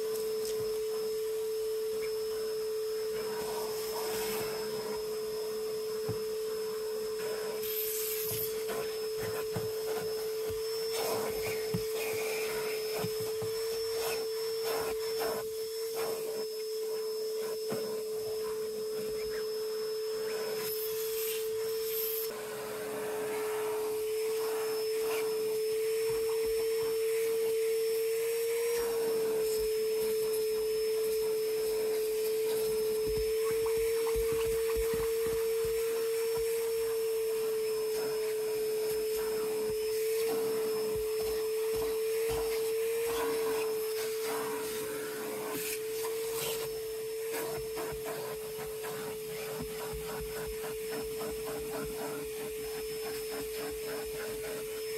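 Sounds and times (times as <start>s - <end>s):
vacuum motor whining: 0.0s - 54.9s
vacuum nozzle scraping and knocking: 5.8s - 16.5s, 28.6s - 54.9s.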